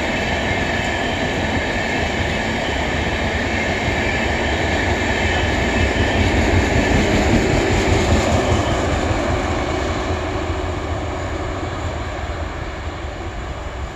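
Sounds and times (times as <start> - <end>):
train coaches rumbling past: 0.0 - 13.9.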